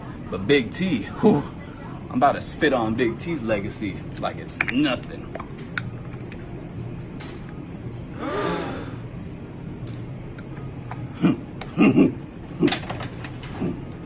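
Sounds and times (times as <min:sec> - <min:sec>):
man spitting: 0:08.2 - 0:09.0.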